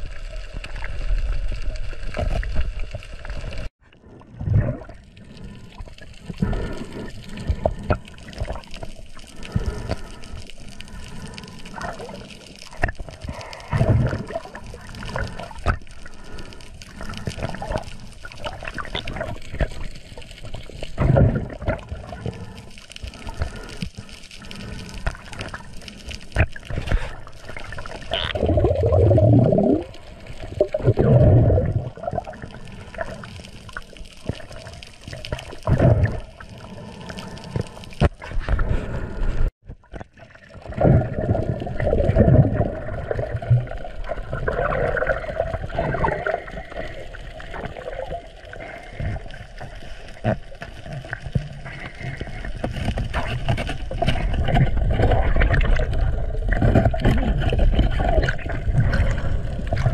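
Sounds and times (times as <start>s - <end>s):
underwater bubbling and gurgling: 0.0s - 59.9s.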